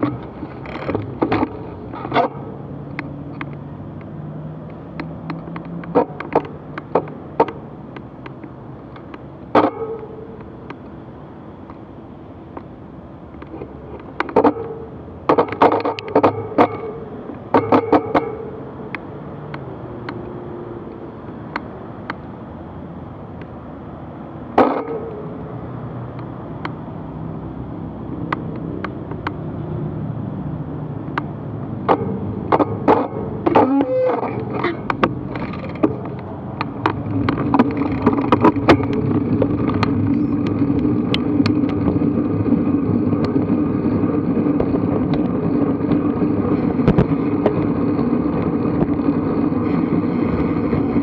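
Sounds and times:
sharp clicks and knocks: 0.0 - 11.0, 12.5 - 22.5, 23.3 - 26.9, 28.2 - 29.5, 31.0 - 51.0
cars driving through intersection: 0.0 - 51.0.

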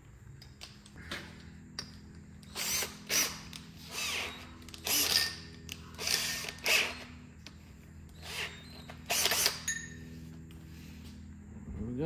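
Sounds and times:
power drill motor whirring: 2.4 - 10.1.

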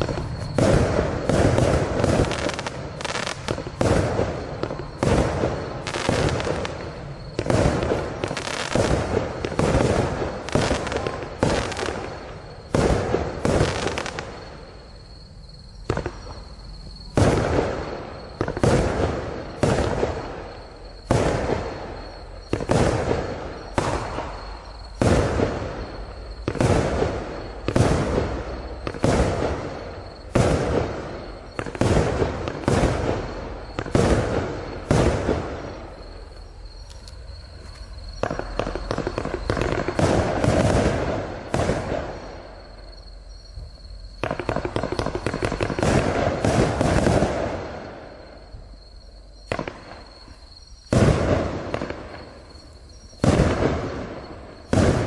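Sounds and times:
firework shells bursting: 44.2 - 47.6.

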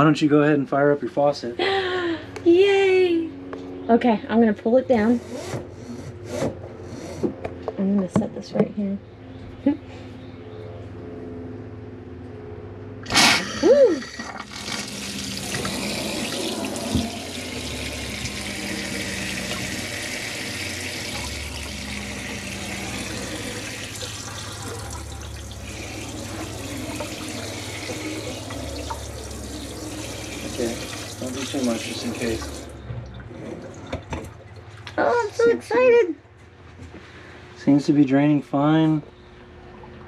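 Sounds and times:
water spraying into steel sink: 13.0 - 32.7
faucet squeal: 13.1 - 32.8.

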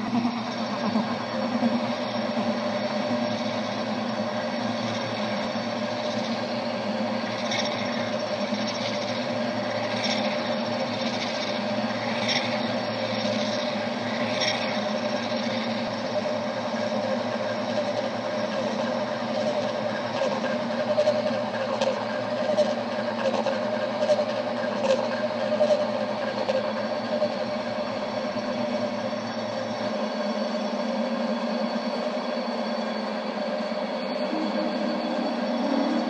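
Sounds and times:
electronic tone drone: 0.0 - 36.0
low hum: 28.4 - 36.0.

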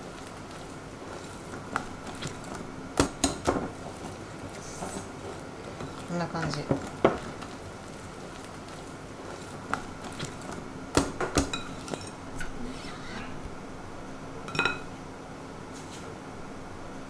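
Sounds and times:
whisk stirring thick batter: 0.0 - 10.6.

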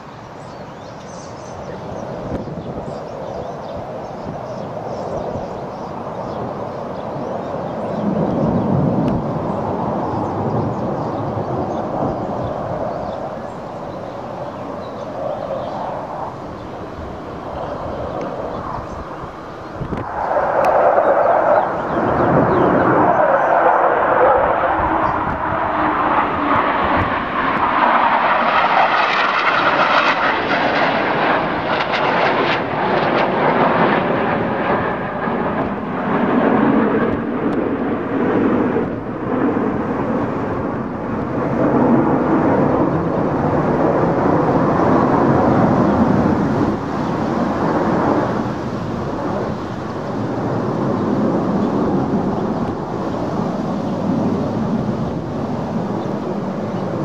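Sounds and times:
jet engines roaring overhead: 0.0 - 57.0.

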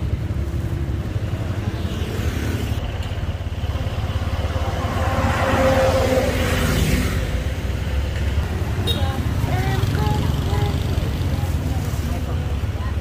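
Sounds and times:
street traffic: 0.0 - 13.0
vehicle passing: 0.0 - 13.0
motor scooter engine running: 8.8 - 13.0.

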